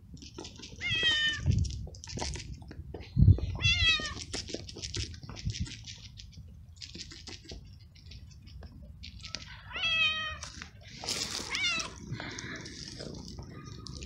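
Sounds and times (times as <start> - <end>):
kitten meowing: 9.7 - 10.4.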